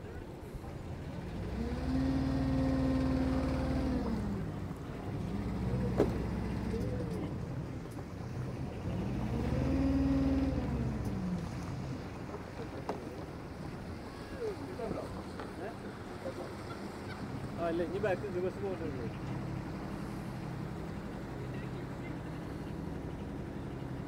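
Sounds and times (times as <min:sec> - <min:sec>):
engine revving: 0:01.4 - 0:07.3, 0:08.8 - 0:11.2.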